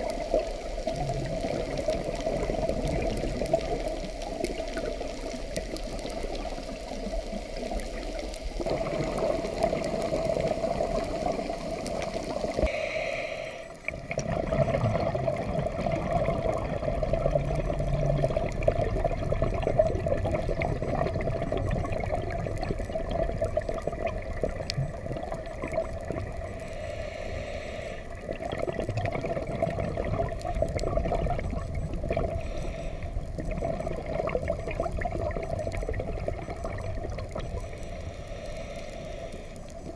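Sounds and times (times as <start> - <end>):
gurgling regulator bubbles: 0.0 - 39.9
underwater watery rush: 0.0 - 39.9.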